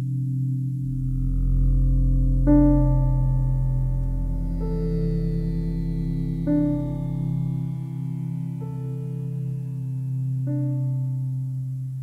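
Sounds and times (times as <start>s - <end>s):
slow held-note background music: 0.0s - 12.0s
steady low tone: 0.0s - 12.0s.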